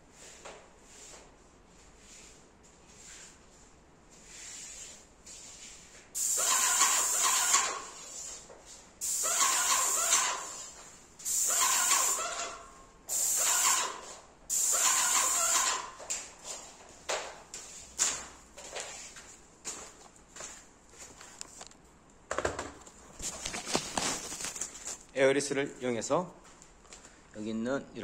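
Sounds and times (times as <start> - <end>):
paint sprayer hissing bursts: 6.2 - 8.4, 9.0 - 16.0.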